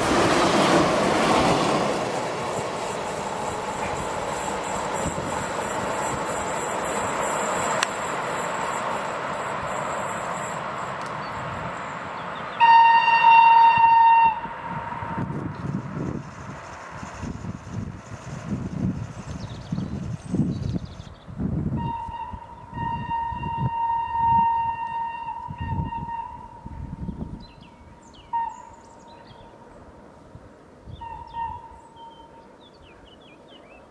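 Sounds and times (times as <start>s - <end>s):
train running noise: 0.0s - 32.6s
train whistle long note: 12.5s - 15.3s, 21.7s - 27.2s, 28.2s - 28.9s, 30.9s - 32.3s.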